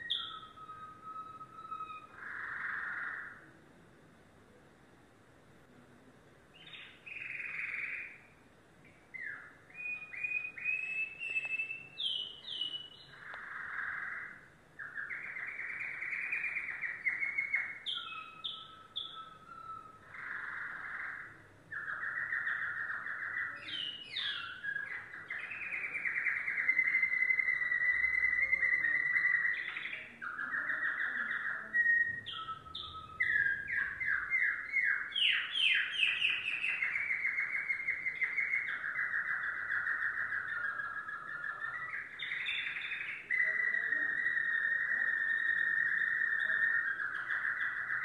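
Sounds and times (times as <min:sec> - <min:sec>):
canary singing trills: 0:00.0 - 0:05.2, 0:06.2 - 0:48.0.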